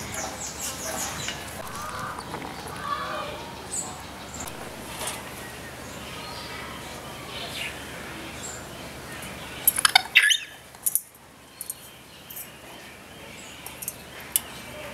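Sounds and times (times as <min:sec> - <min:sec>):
parrots calling softly: 0:09.2 - 0:10.7
gliding squawk: 0:09.8 - 0:10.6.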